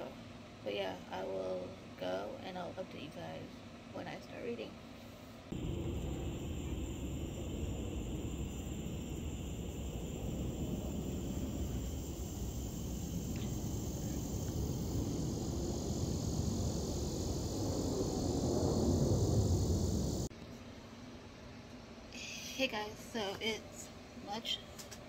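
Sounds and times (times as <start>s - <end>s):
faint high hum: 0.0s - 24.8s
low rumble: 5.5s - 20.3s.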